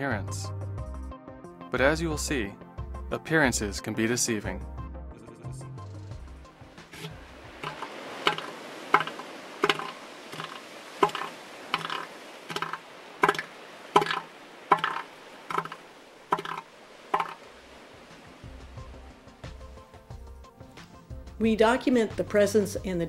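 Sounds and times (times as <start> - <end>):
elephant seal pulsed threat call: 6.9 - 17.4.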